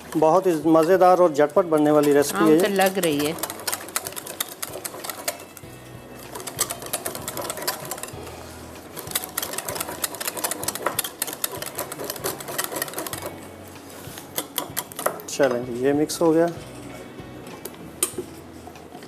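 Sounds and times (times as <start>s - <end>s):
whisk clicking against glass bowl: 0.0s - 5.6s, 6.3s - 8.2s, 9.0s - 13.3s.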